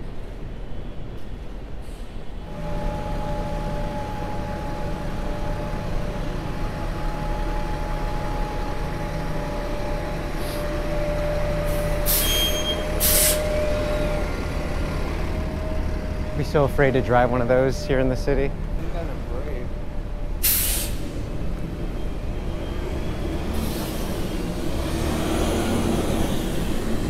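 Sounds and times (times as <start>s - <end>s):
bus engine hum with whine: 0.0s - 27.0s
air brakes hissing: 1.7s - 3.4s, 10.3s - 13.8s, 20.4s - 21.4s, 23.5s - 24.7s.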